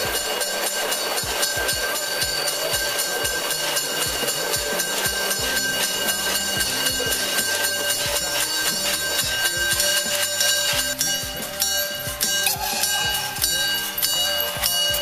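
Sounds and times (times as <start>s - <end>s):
instrumental music with steady beat: 0.0s - 15.0s.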